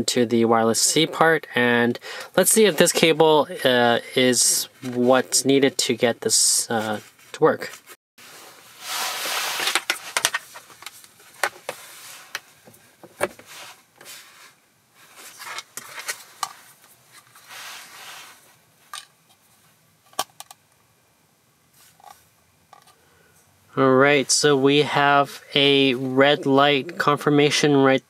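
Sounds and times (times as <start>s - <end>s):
cable rustling: 8.4s - 14.3s.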